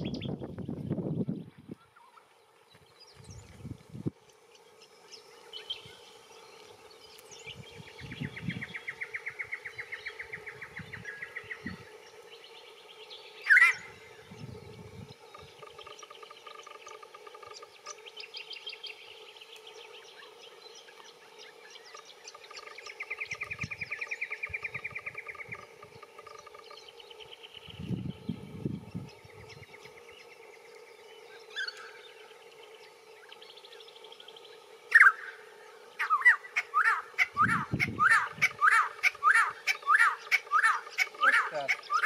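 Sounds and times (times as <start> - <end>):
bird calling in rapid runs: 36.0 - 42.0.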